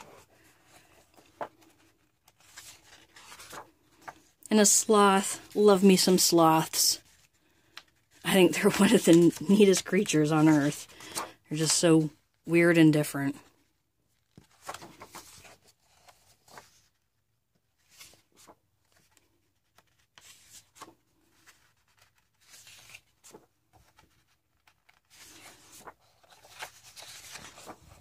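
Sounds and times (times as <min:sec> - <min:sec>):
book pages turning: 0:00.0 - 0:12.2, 0:14.1 - 0:28.0.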